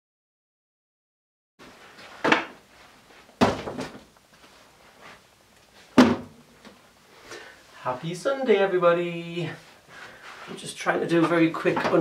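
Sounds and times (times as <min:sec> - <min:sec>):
paper bags knocking on table: 0:03.4 - 0:04.0.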